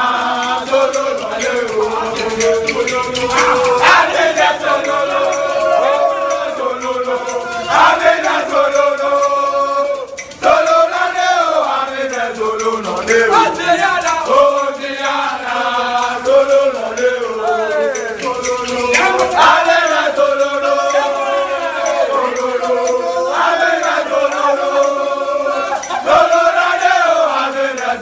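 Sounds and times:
men chanting in unison: 0.0 - 28.0.

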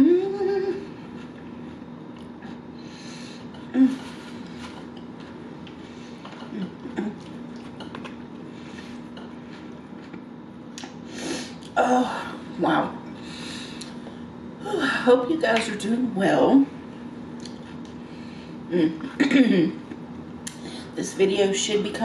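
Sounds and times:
steady low hum: 0.0 - 22.0
chewing: 4.4 - 10.2
lip smacks: 20.4 - 20.7.

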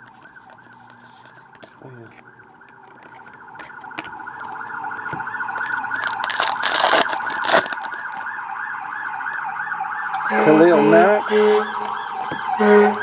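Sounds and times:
electronic warbling siren: 0.2 - 13.0
foil card pack tearing: 5.6 - 8.3.

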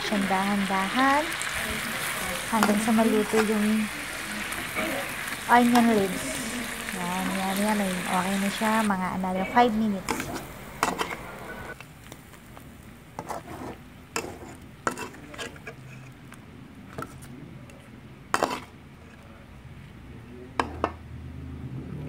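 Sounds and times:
frying sizzle: 0.0 - 15.2.

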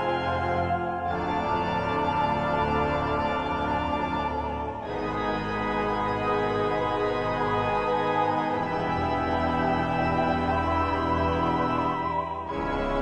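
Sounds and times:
slow sustained chord music: 0.0 - 13.0.

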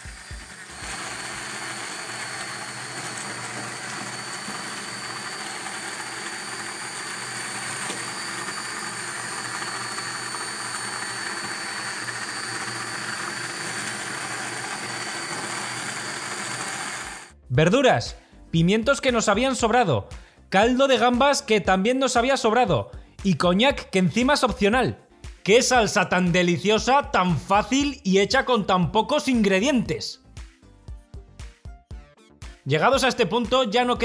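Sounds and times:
hand blender whining: 0.0 - 17.4
liquid churning: 0.2 - 17.3.

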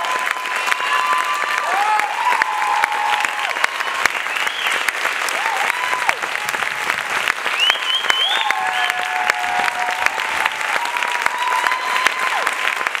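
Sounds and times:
audience applauding: 0.0 - 13.0
long whistles: 7.6 - 9.0.

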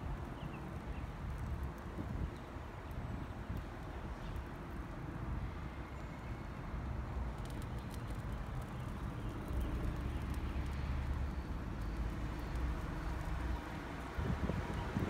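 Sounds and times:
wind buffeting microphone: 13.8 - 15.0.

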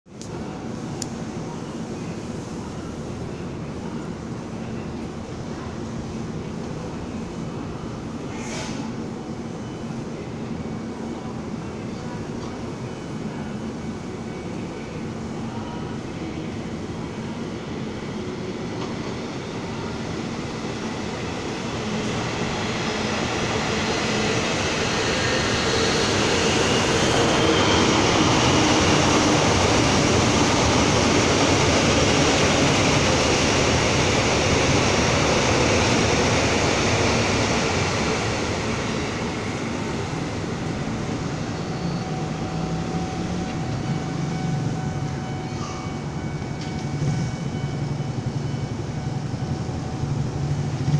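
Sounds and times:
electric train passing: 17.6 - 50.9.

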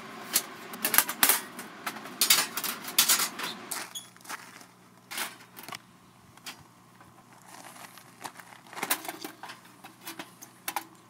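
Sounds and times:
bag crinkling: 7.2 - 9.5.

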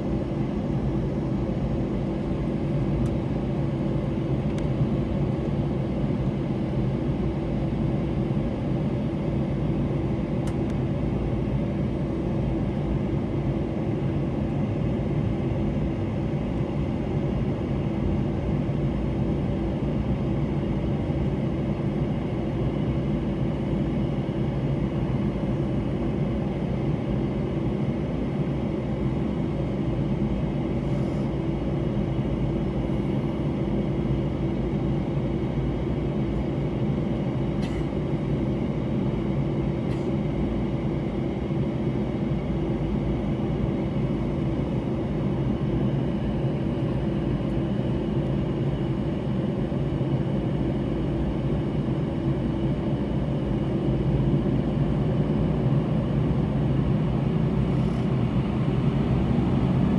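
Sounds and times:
jet engines idling from cabin: 0.0 - 59.9.

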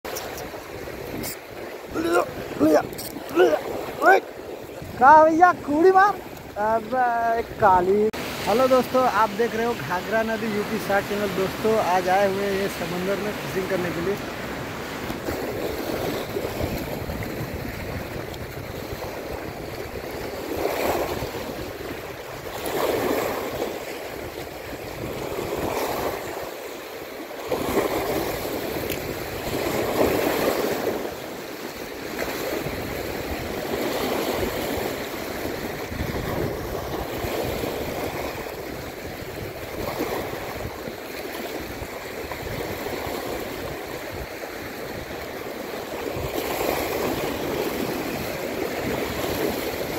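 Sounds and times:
wind buffeting microphone: 0.1 - 11.7, 14.3 - 26.5, 32.0 - 49.9
waves breaking over rocks: 0.1 - 49.9.

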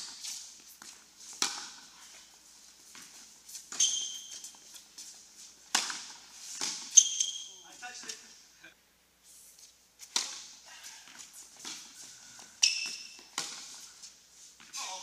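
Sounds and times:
shoe squeak: 3.5 - 4.8, 6.6 - 7.7, 12.6 - 13.4.

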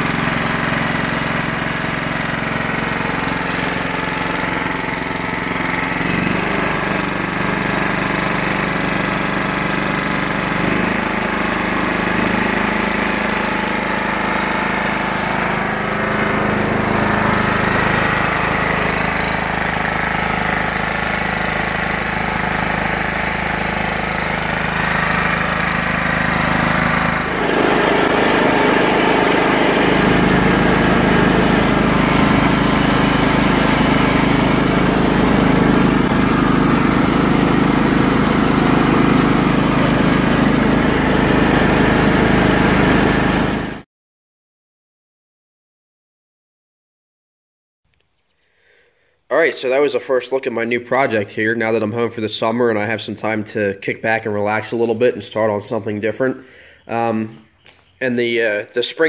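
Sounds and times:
lawn tractor engine running: 0.0 - 43.8.

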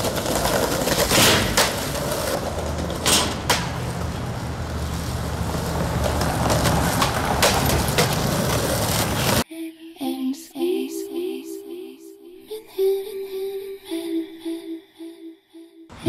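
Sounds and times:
skateboard clacks: 0.0 - 9.4
skateboard wheels rolling on concrete: 0.0 - 9.4.

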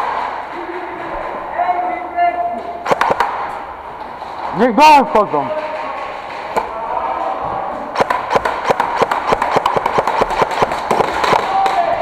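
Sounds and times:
airsoft guns firing: 0.0 - 1.1, 2.8 - 4.5, 7.9 - 12.0.

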